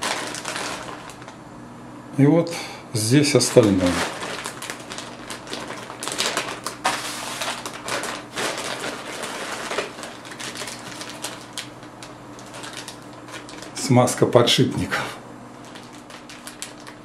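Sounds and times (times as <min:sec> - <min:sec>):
plastic bag crinkling: 0:00.0 - 0:01.4, 0:03.1 - 0:14.3, 0:15.5 - 0:17.0
rummaging through bagged parts: 0:00.0 - 0:01.4, 0:03.3 - 0:13.9, 0:15.6 - 0:17.0.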